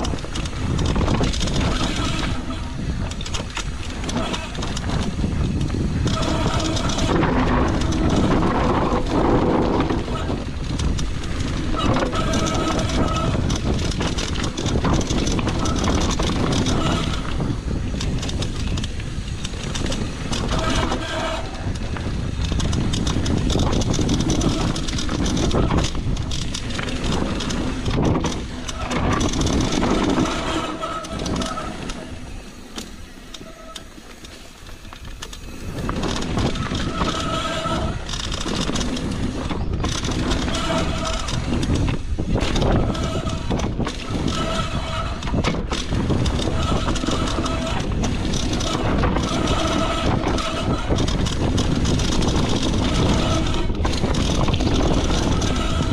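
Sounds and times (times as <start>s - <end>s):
bike tyres rumbling over dirt: 0.0s - 55.9s
wind buffeting microphone: 0.0s - 55.9s
short squealing tones: 28.7s - 34.5s.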